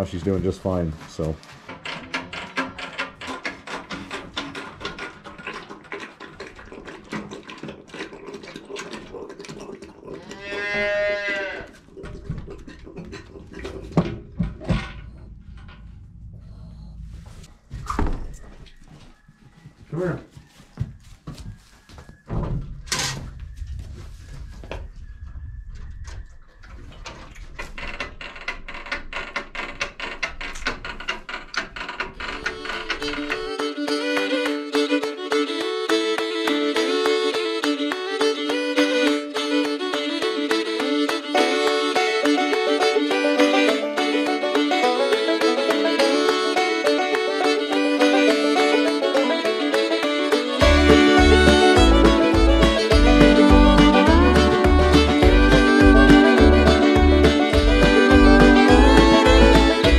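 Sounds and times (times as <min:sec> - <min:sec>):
calf sucking milk from teat: 0:01.4 - 0:14.4
calf mooing: 0:10.2 - 0:11.8.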